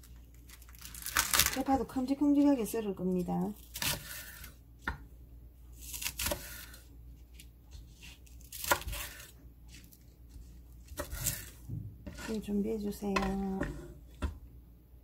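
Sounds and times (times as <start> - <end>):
knife chopping on wooden board: 6.0 - 6.7, 7.8 - 9.3, 10.9 - 12.4, 13.1 - 14.4.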